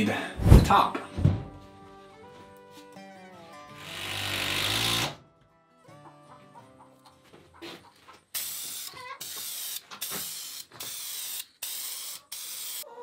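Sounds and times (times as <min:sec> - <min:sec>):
aerosol spray can hissing: 0:08.4 - 0:12.8.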